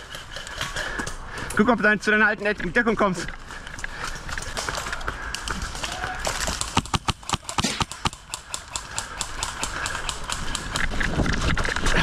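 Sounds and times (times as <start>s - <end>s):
airsoft rifle shots: 5.9s - 10.8s.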